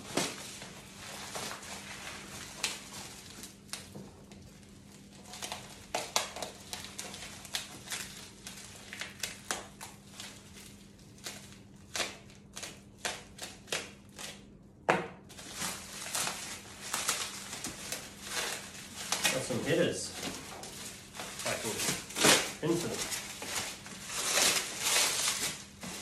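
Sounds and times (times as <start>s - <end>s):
plastic wrapping crinkling: 0.0s - 12.2s, 15.3s - 26.0s.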